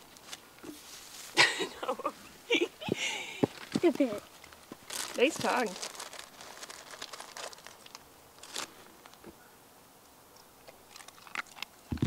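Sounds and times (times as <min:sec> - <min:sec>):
plastic bag crinkling: 0:03.5 - 0:09.2.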